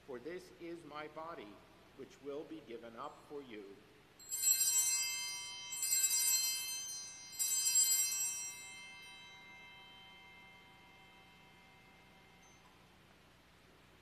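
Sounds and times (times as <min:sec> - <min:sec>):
altar bells ringing: 0:04.2 - 0:13.0.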